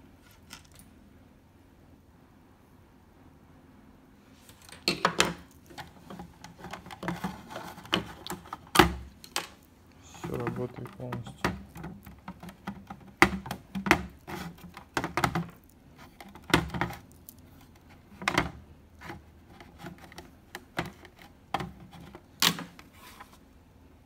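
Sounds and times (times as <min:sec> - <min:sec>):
plastic clicks and knocks: 0:04.7 - 0:09.6, 0:10.2 - 0:15.6, 0:16.2 - 0:17.0, 0:17.8 - 0:22.9.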